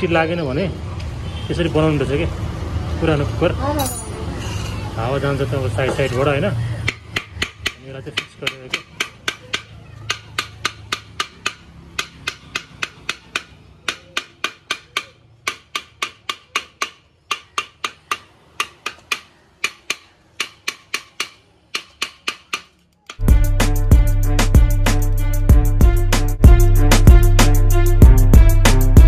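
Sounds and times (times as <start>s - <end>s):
hammer tapping aluminium pot rim: 6.8s - 22.7s.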